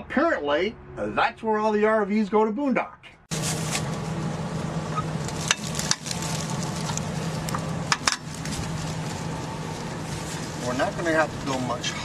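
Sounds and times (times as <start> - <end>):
low mechanical hum: 3.3 - 12.0.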